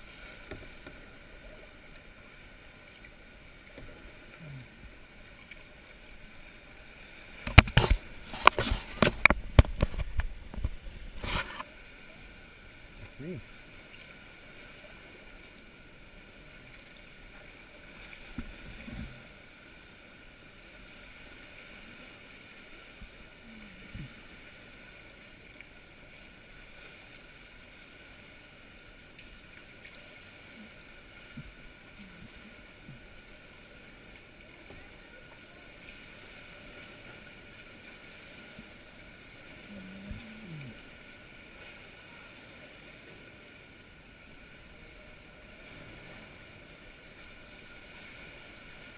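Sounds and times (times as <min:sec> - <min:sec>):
water sloshing: 0:00.0 - 0:19.7
paddle strokes: 0:00.0 - 0:48.9.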